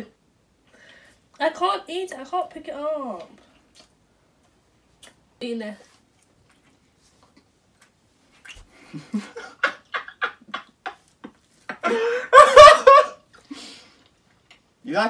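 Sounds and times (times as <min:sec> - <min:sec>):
man and woman laughing: 0:08.8 - 0:13.2.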